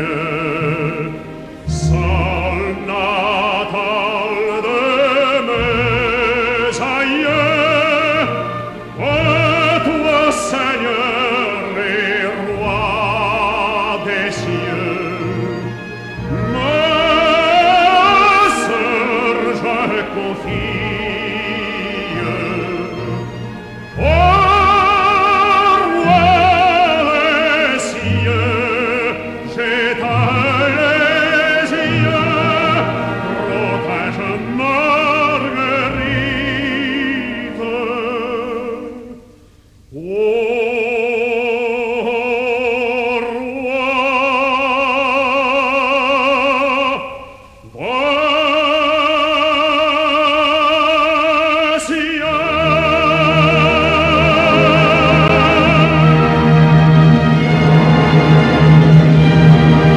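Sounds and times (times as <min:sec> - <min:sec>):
orchestra playing: 0:00.0 - 0:39.6, 0:52.1 - 0:59.9
baritone singing operatically: 0:00.0 - 0:59.9.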